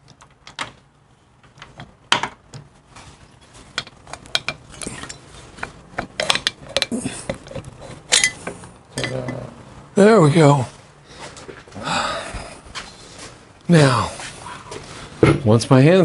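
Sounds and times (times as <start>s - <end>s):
metal cylinder clicking and scraping: 3.8s - 9.1s.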